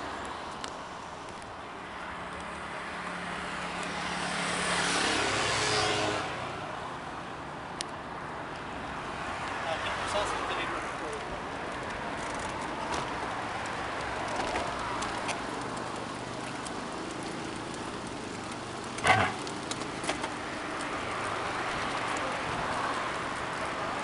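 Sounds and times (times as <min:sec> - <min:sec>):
wheels rolling on asphalt: 0:00.0 - 0:24.0.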